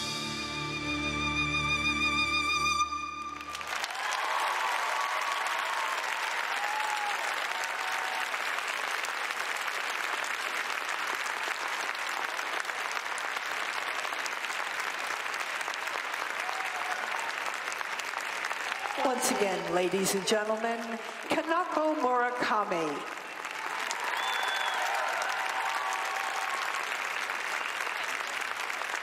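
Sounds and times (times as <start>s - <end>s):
crowd applauding: 3.1s - 29.0s
voices cheering: 3.5s - 8.6s, 16.3s - 17.6s, 18.6s - 20.0s, 23.5s - 27.3s.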